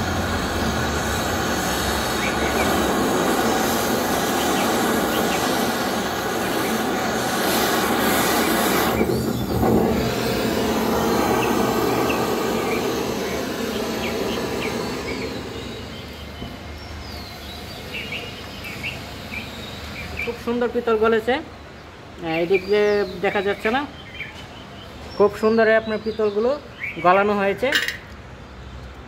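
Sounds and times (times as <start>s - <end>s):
torch flame hissing: 0.0s - 20.8s.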